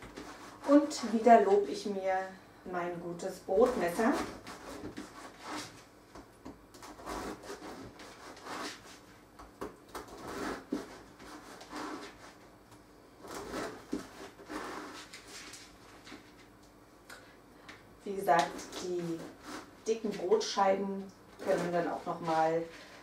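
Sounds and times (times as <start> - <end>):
bread knife sawing through bread: 0.0 - 1.4, 3.6 - 5.8, 6.8 - 9.0, 10.0 - 12.4, 13.2 - 15.5, 19.0 - 19.7.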